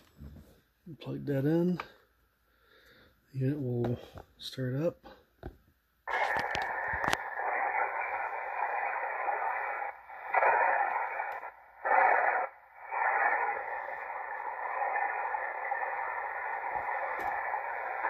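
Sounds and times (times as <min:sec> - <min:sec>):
radio band noise from speaker: 0:06.1 - 0:18.0.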